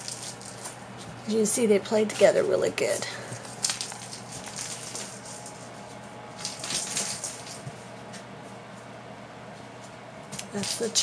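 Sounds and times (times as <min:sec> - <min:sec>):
kittens scampering on floor: 0:00.0 - 0:01.2, 0:03.3 - 0:08.3.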